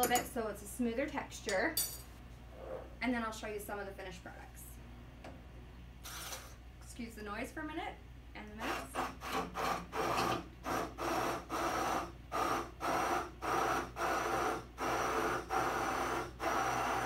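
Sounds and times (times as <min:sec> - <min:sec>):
immersion blender whirring: 0:08.9 - 0:17.0.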